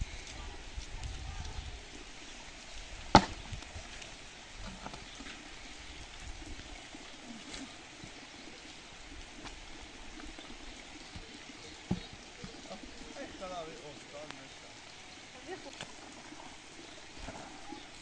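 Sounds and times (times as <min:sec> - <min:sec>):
light rain falling: 0:00.0 - 0:18.0
wooden board knocks: 0:03.2 - 0:03.4.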